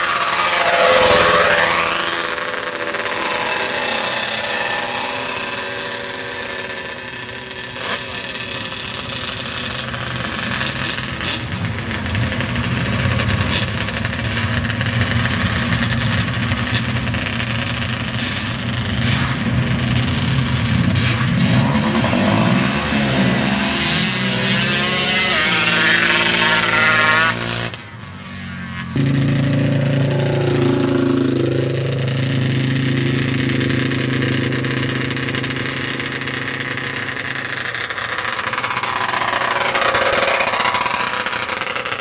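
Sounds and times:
engine idling: 29.0s - 42.0s.

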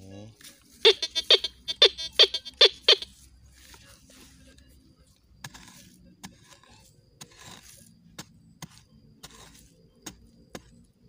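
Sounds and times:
metal hoe chopping hard earth: 5.4s - 10.7s.

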